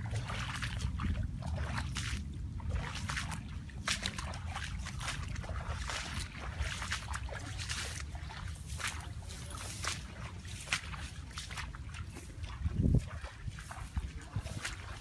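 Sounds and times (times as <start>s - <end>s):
footsteps splashing through muddy water: 0.0s - 15.0s
grass swishing against legs: 6.0s - 15.0s.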